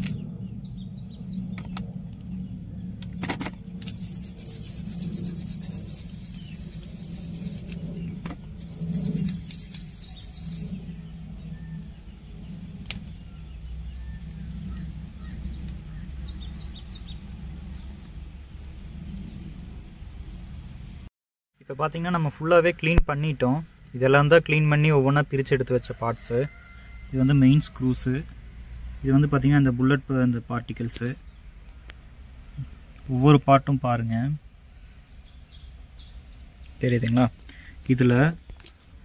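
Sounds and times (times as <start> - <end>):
birds chirping: 0.0 - 20.5, 34.7 - 38.8
clicks and scratchy scrubbing: 3.8 - 10.7.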